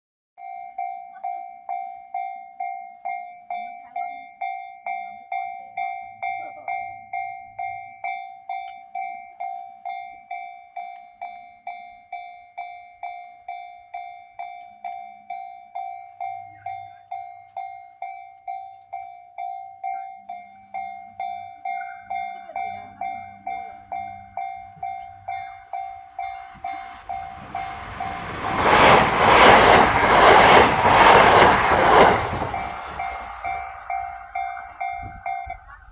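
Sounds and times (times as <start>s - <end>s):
level crossing alarm ringing: 0.6s - 35.9s
approaching train rushing: 20.8s - 35.9s.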